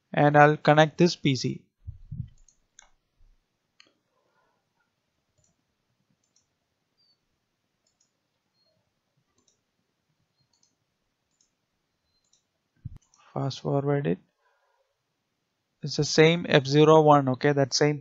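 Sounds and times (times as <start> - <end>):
computer mouse clicks: 2.1 - 3.0, 5.4 - 5.6, 6.2 - 7.2, 7.8 - 8.7, 9.3 - 9.6, 10.4 - 13.3.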